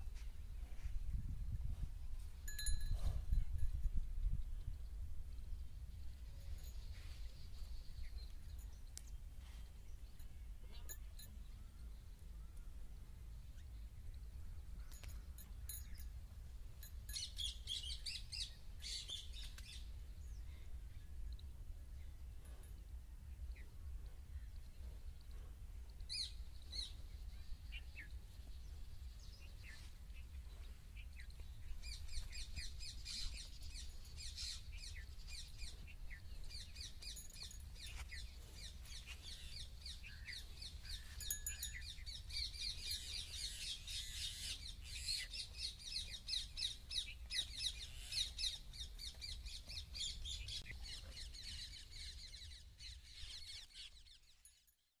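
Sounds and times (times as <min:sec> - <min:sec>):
small birds chirping: 0:16.8 - 0:54.8.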